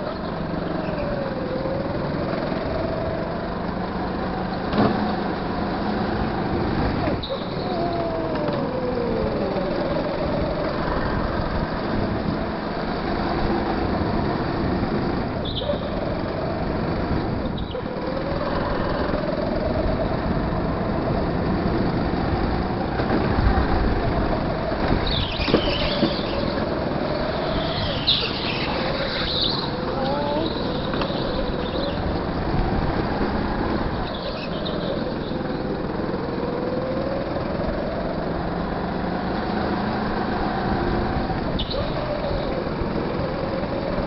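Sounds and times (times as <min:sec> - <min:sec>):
go-kart engine revving: 0:00.0 - 0:44.0
tyre squeals: 0:25.0 - 0:32.1.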